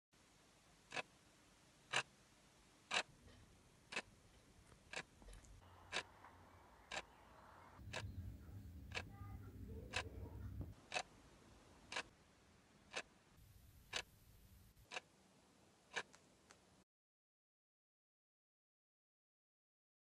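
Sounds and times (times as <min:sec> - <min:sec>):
faint room noise: 0:00.2 - 0:16.8
clock ticking: 0:00.9 - 0:01.1, 0:01.9 - 0:02.1, 0:02.9 - 0:11.2, 0:11.8 - 0:12.2, 0:12.8 - 0:13.2, 0:13.8 - 0:14.1, 0:14.9 - 0:15.1, 0:15.9 - 0:16.2.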